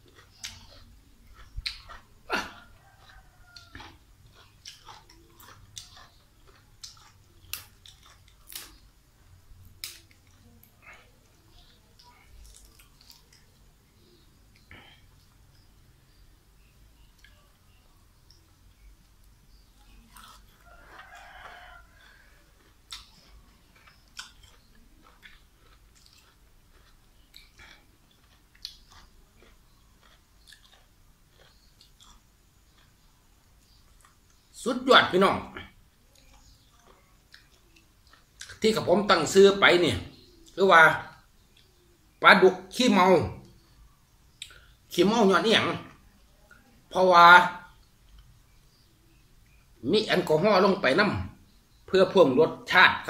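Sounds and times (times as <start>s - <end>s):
chewing clicks and smacks: 0.0s - 16.2s, 17.1s - 34.6s, 35.6s - 38.7s, 44.3s - 44.8s, 47.8s - 48.5s
rooster crowing: 2.3s - 4.0s, 20.5s - 22.6s.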